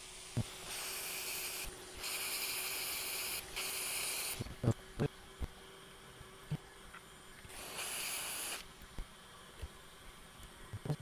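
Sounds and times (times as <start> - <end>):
hot air blower hissing: 0.0 - 4.7, 7.5 - 8.8.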